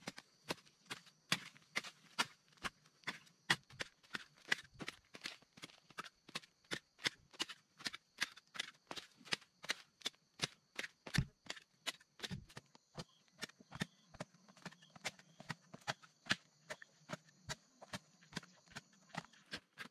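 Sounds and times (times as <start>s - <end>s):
hoe chopping dry soil: 0.0s - 19.9s.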